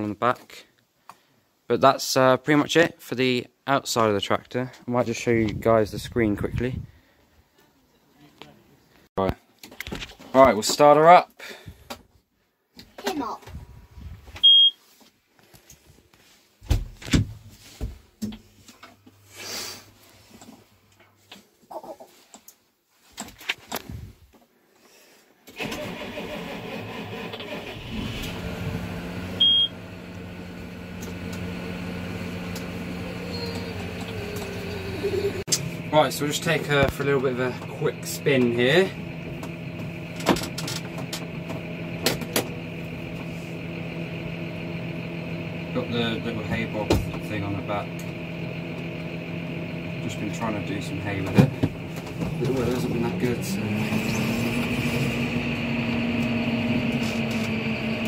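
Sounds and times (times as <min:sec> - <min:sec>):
tractor diesel engine running: 0:25.6 - 0:58.0.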